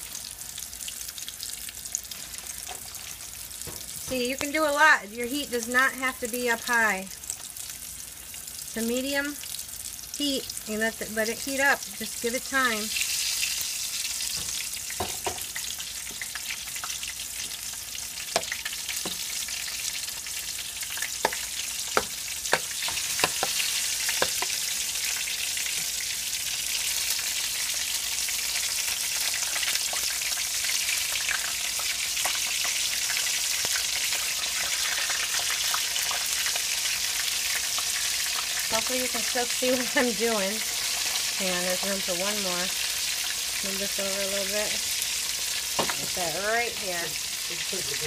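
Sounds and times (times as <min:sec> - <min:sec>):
mushrooms sizzling in hot oil: 0:00.0 - 0:48.0
tongs and spoon tapping pan: 0:14.3 - 0:15.5, 0:18.3 - 0:19.2, 0:21.2 - 0:24.6.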